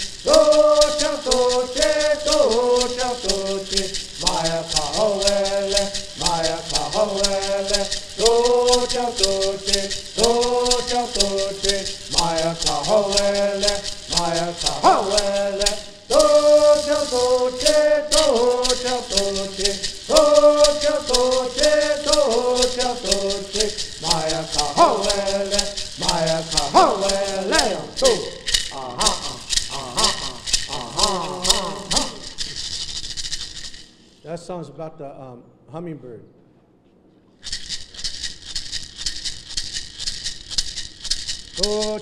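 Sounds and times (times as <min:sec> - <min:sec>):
group of men singing in unison: 0:00.0 - 0:32.3
gourd rattles shaking: 0:00.0 - 0:34.2, 0:37.4 - 0:42.0.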